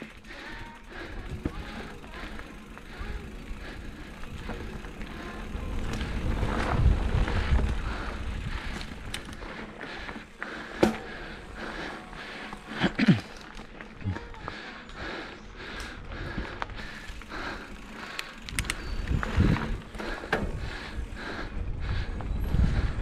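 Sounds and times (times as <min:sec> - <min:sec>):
bike rattling: 0:00.0 - 0:23.0
bike tyres rolling over dirt: 0:00.0 - 0:23.0.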